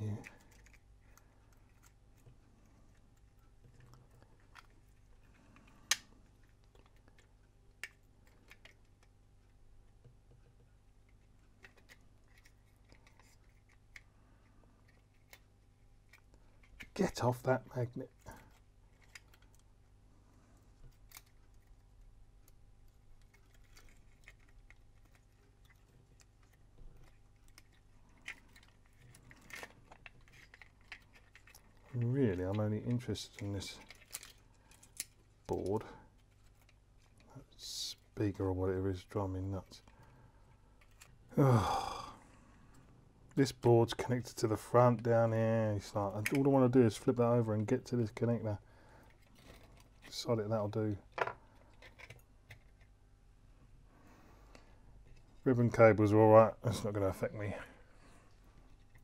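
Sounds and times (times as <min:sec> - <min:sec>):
low steady hum: 0:00.0 - 0:59.0
clicks of small parts and screws: 0:33.4 - 0:35.6, 0:40.8 - 0:41.2, 0:51.1 - 0:52.9.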